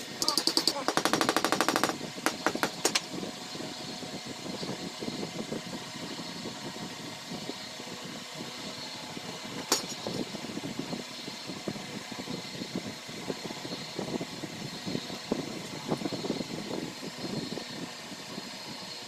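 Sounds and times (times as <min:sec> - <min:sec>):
steady mechanical hum: 0:00.0 - 0:19.0
sharp plastic clicks: 0:00.2 - 0:03.1.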